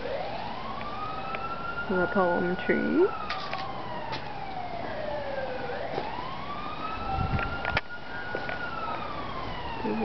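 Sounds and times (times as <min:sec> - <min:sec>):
siren wailing: 0:00.0 - 0:10.0.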